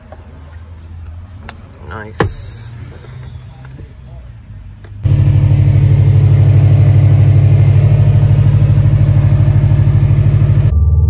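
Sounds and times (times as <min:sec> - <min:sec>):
car engine idling: 0:05.0 - 0:10.7.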